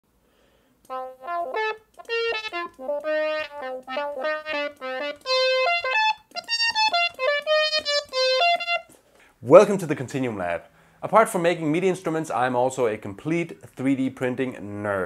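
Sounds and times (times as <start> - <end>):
synthesizer melody: 0.9 - 8.9.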